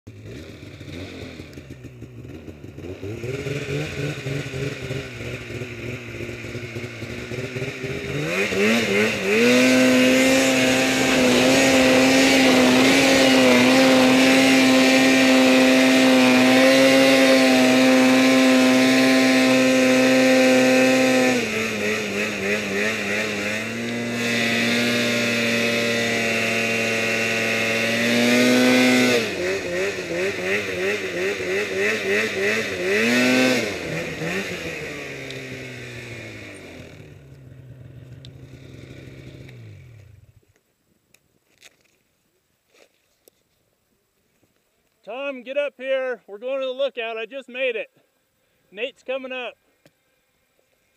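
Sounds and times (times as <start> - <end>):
snowmobile engine revving: 0.1 - 40.4.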